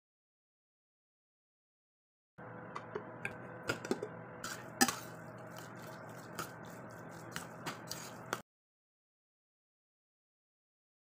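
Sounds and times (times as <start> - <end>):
steady background hum: 2.4 - 8.4
ladle clinking and scraping pot: 2.8 - 8.4
soft squishing: 4.5 - 8.4.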